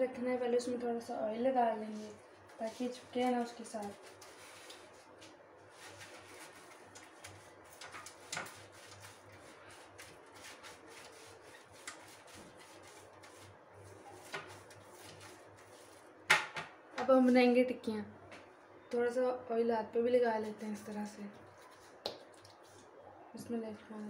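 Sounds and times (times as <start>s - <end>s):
pastry brush swishing: 8.4s - 16.1s.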